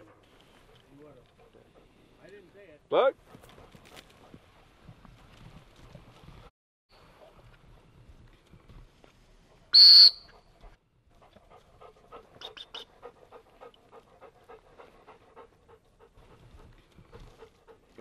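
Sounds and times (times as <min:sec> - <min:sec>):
dog panting: 0:00.0 - 0:02.4, 0:03.2 - 0:04.8, 0:10.3 - 0:18.0
dog whistle blast: 0:09.7 - 0:10.4.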